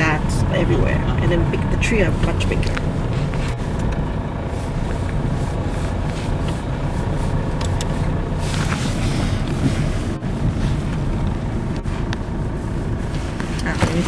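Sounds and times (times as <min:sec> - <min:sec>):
car engine and tyres rumbling: 0:00.0 - 0:14.0.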